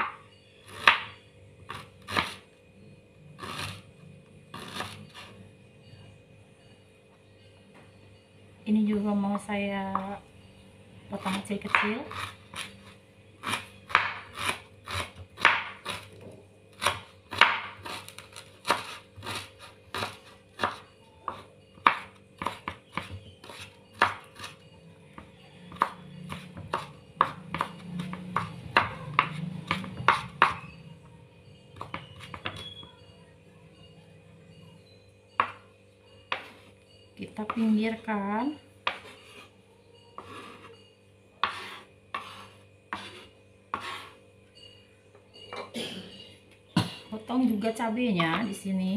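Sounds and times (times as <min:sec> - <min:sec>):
knife chopping on wooden board: 0:00.0 - 0:01.1, 0:01.7 - 0:02.4, 0:11.2 - 0:24.6, 0:25.2 - 0:30.7, 0:31.8 - 0:32.7, 0:35.4 - 0:35.6, 0:36.3 - 0:36.6, 0:38.8 - 0:39.4, 0:41.4 - 0:44.2.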